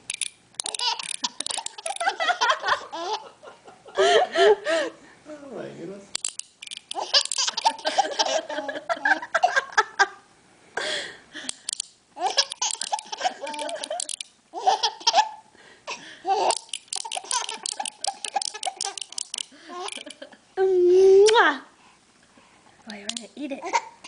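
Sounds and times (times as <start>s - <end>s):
baby laughing: 0.6s - 4.5s, 6.9s - 9.9s, 12.2s - 15.5s, 16.2s - 20.3s.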